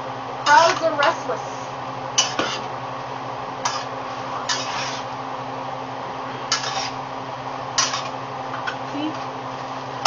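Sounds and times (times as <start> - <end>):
steady low hum: 0.0 - 10.0
utensil scraping swishes in skillet: 3.7 - 5.2, 6.5 - 7.0.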